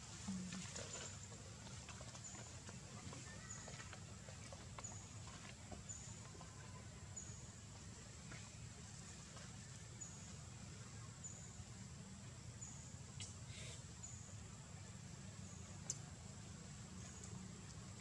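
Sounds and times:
faint ticks: 15.8s - 16.1s, 17.1s - 18.0s.

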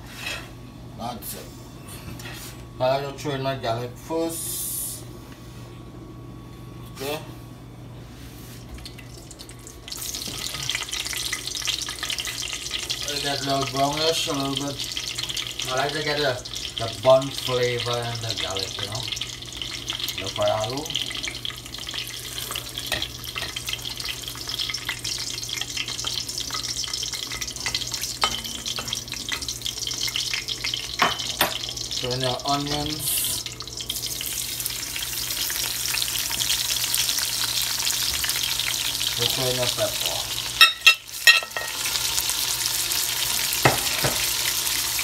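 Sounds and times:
garlic sizzling in hot oil: 8.9s - 45.0s
metal spoon clinking: 40.6s - 41.7s.

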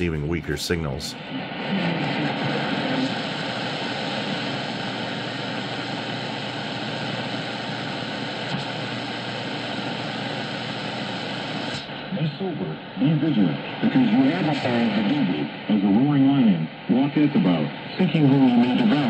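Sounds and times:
faint steady radio tones: 0.0s - 1.2s, 11.8s - 19.0s
radio static hiss: 0.0s - 1.2s, 11.8s - 19.0s.

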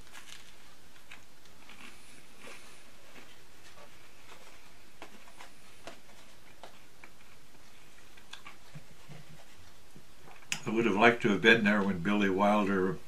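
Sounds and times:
steady background hiss: 0.0s - 13.0s.

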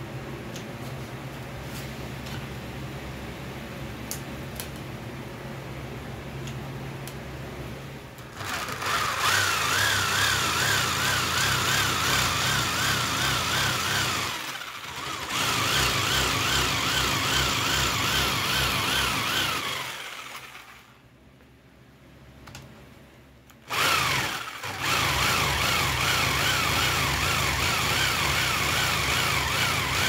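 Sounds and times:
jigsaw cutting steel: 8.2s - 21.0s, 23.6s - 30.0s.

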